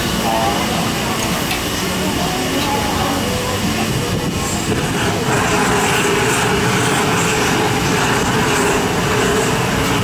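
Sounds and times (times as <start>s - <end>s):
blowtorch flame hissing: 0.0s - 10.0s.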